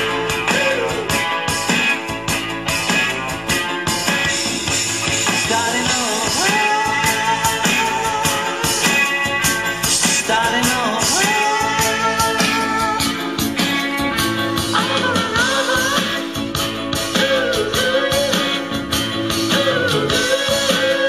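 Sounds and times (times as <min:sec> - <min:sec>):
guitar: 0:00.0 - 0:21.0
pop ballad: 0:00.0 - 0:21.0.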